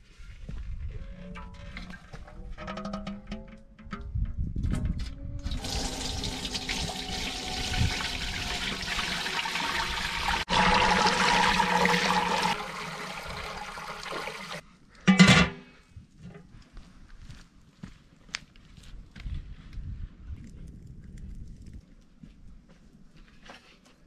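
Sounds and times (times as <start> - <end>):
water rushing: 5.5 - 14.6.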